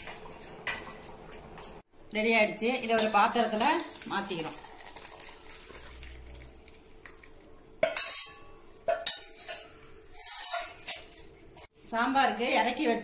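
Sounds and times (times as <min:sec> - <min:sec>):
ladle scraping metal vessels: 0:07.8 - 0:11.2.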